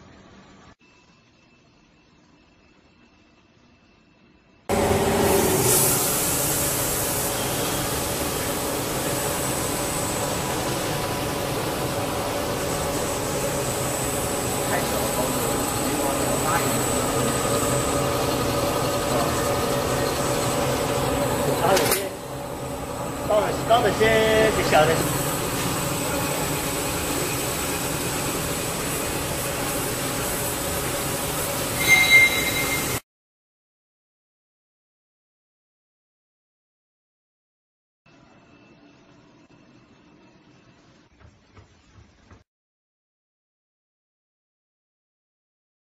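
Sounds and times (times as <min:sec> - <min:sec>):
thin high whine: 0:00.0 - 0:33.0
machinery whirring: 0:04.7 - 0:33.0
high squeal: 0:31.7 - 0:33.0.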